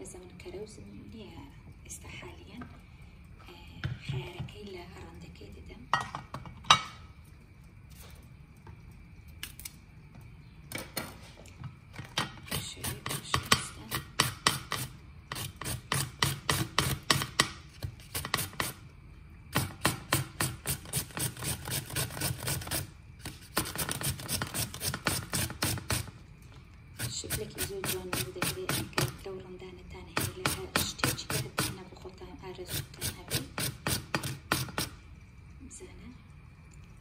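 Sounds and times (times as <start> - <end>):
cucumber grating strokes: 12.5 - 17.0, 17.7 - 18.8, 20.3 - 26.1, 27.0 - 29.2, 30.2 - 31.8, 32.6 - 35.0.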